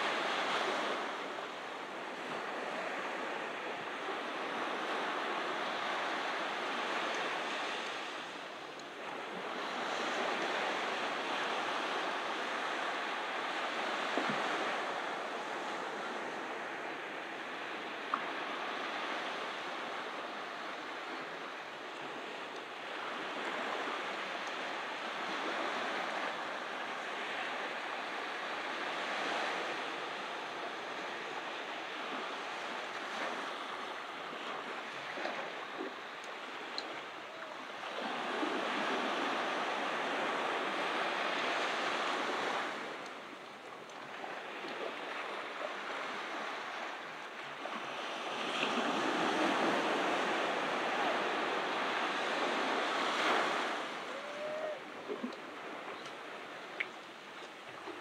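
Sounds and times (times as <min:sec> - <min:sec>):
ocean surf breaking: 0:47.8 - 0:56.8.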